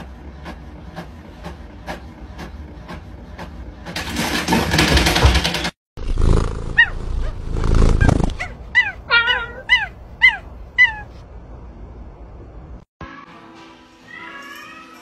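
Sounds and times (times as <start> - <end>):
small animal high-pitched cries: 8.4 - 11.2.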